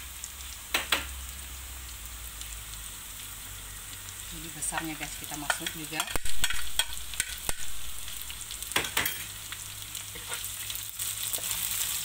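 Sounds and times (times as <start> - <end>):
frying sizzle in oil: 0.0 - 12.0
spatula scraping a wok: 10.0 - 12.0.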